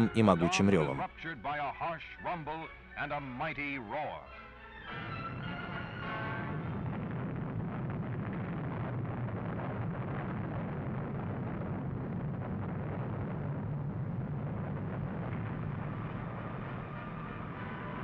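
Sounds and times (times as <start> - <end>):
rocket engine roaring: 6.0 - 18.0.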